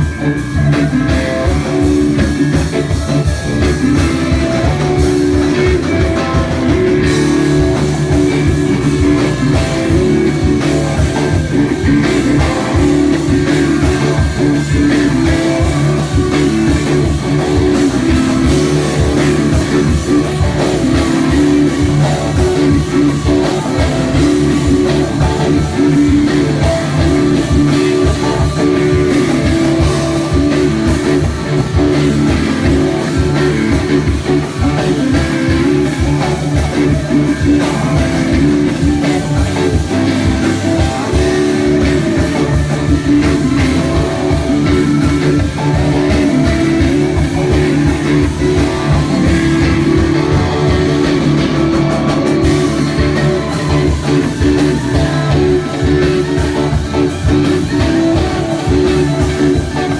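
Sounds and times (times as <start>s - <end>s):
electric guitars: 0.0s - 59.9s
live rock band playing: 0.0s - 59.9s.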